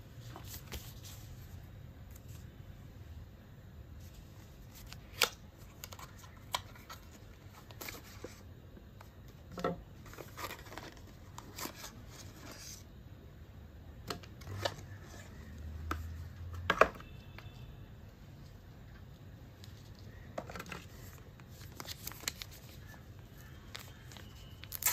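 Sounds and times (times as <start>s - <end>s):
paper and packaging rustling: 10.0s - 12.8s, 19.7s - 24.9s
paper crinkling: 10.0s - 12.8s, 19.7s - 24.9s.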